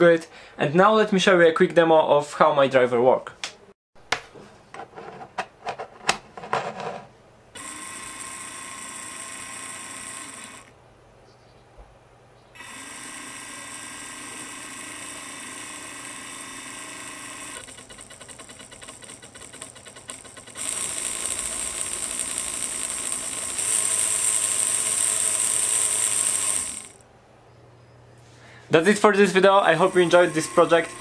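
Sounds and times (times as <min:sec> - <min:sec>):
motor rattling: 0:07.6 - 0:10.7, 0:12.6 - 0:27.0, 0:28.9 - 0:31.0
small motor whining: 0:07.6 - 0:10.7, 0:12.6 - 0:27.0, 0:29.3 - 0:31.0.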